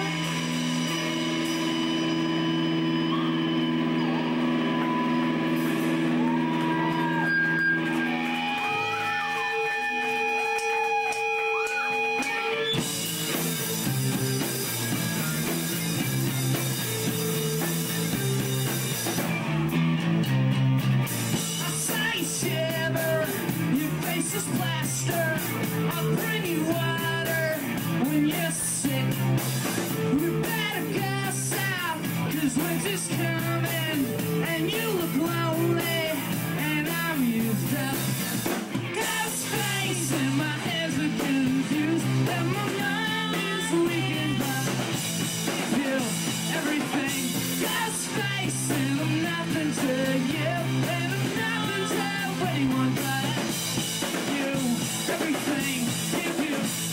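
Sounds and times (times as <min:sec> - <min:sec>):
rock band playing: 0:00.0 - 0:56.9
person singing: 0:21.4 - 0:29.3, 0:30.0 - 0:38.2, 0:38.8 - 0:56.9.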